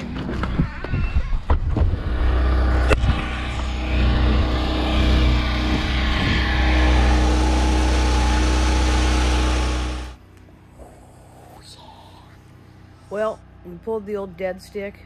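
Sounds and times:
generator running: 1.5 - 10.7.

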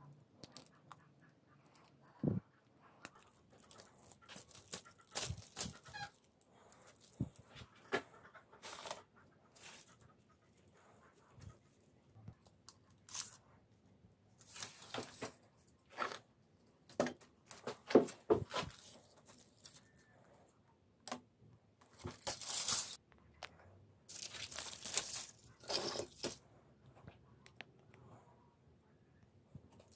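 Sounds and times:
tearing and crinkling rustles: 3.0 - 7.8, 8.6 - 9.0, 12.9 - 13.4, 14.4 - 16.2, 18.4 - 20.1, 21.9 - 23.0, 24.1 - 26.4.

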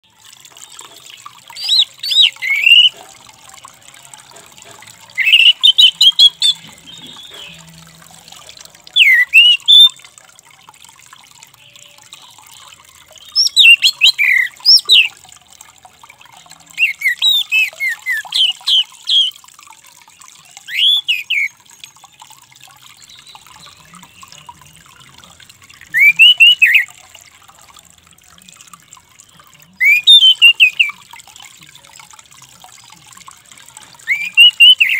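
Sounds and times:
thrush singing: 1.5 - 3.0, 3.6 - 7.8.

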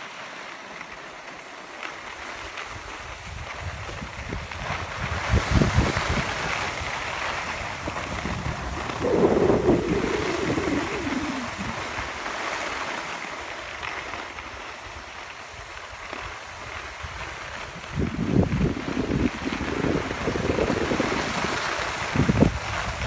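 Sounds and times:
skis sliding over snow: 0.0 - 23.0
wind buffeting microphone: 3.1 - 12.2, 16.6 - 23.0.

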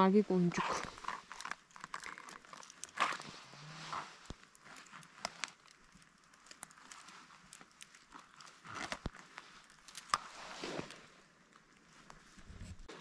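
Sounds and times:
leaves and twigs rustling: 0.0 - 13.0
small clicks and snaps: 1.0 - 3.2, 4.2 - 10.2.

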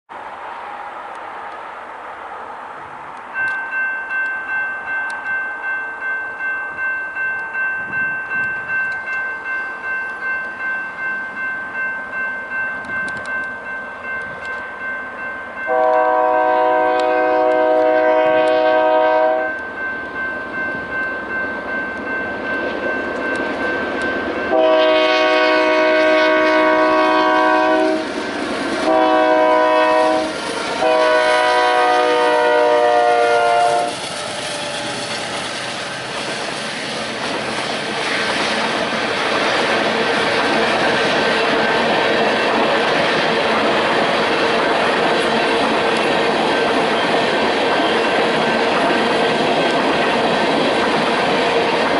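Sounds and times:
train rumble: 0.1 - 51.9
crossing warning bell ringing: 3.2 - 51.9
locomotive air horn: 15.7 - 19.6, 24.5 - 28.2, 28.8 - 35.4.

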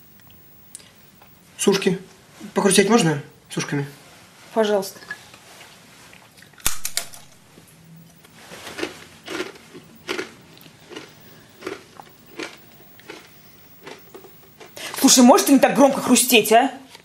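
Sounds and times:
crunching of dry bread rings: 8.1 - 15.1.

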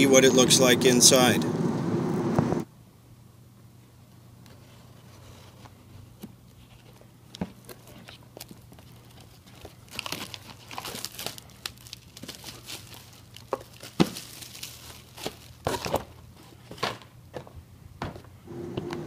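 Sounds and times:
cardboard rustling and crinkling: 4.5 - 17.5.

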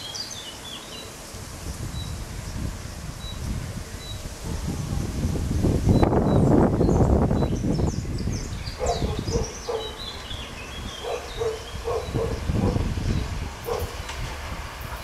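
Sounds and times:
birds chirping faintly: 0.0 - 14.3
dog barking: 4.4 - 5.1, 8.8 - 10.1, 11.0 - 12.9, 13.6 - 14.0.

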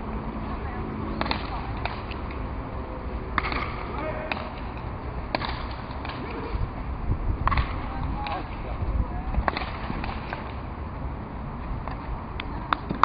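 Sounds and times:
ball struck by wooden bat: 1.2 - 2.3, 3.3 - 6.4, 7.4 - 8.5, 9.4 - 10.6, 11.8 - 13.0.

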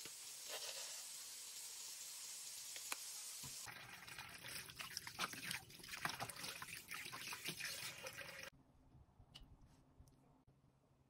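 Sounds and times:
water splashing and sloshing: 3.6 - 8.5
hands rinsing raw chicken: 3.7 - 8.5
tap water running into bowl: 3.7 - 8.5.

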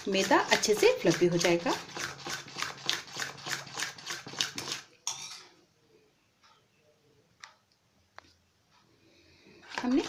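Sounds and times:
spoon beating batter in metal bowl: 0.0 - 5.6, 9.5 - 10.0.

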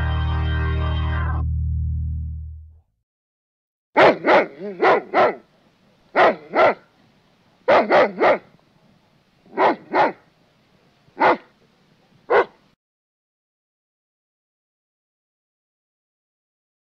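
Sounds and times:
dog barking: 4.0 - 5.5, 6.1 - 6.9, 7.7 - 8.5, 9.5 - 10.3, 11.2 - 11.6, 12.3 - 12.6.

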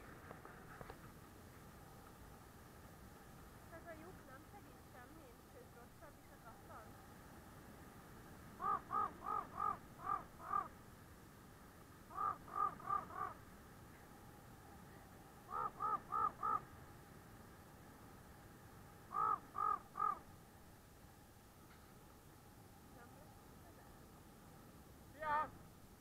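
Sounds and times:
crow cawing: 8.6 - 10.8, 12.1 - 13.4, 15.5 - 16.7, 19.1 - 20.3.

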